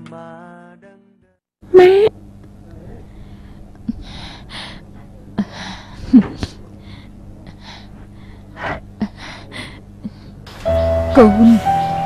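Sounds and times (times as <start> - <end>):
steady low hum: 1.6 - 12.0
person gasping breaths: 2.9 - 10.4.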